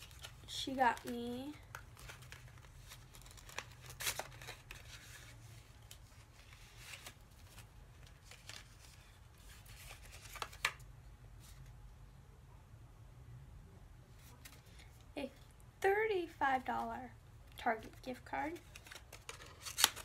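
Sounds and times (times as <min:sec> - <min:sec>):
paper and card rustling: 0:00.0 - 0:10.8, 0:14.1 - 0:15.5, 0:17.8 - 0:20.0
sharp paper crackles: 0:00.0 - 0:10.8, 0:18.5 - 0:20.0.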